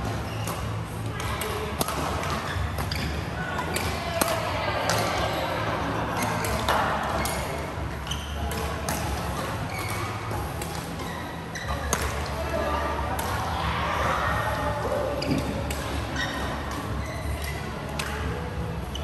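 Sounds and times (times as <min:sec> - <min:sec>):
shoe squeaks: 0:00.0 - 0:00.8, 0:02.3 - 0:03.8, 0:07.2 - 0:12.3, 0:15.0 - 0:17.9
rackets hitting shuttlecock: 0:00.0 - 0:05.2, 0:08.4 - 0:12.4, 0:13.2 - 0:13.4, 0:15.2 - 0:18.2.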